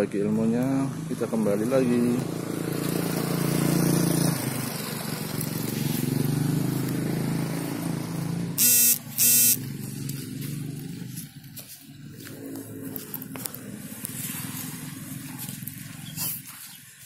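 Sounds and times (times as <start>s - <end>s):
engine humming: 2.7s - 16.5s
vehicle horn beeps: 8.6s - 9.6s.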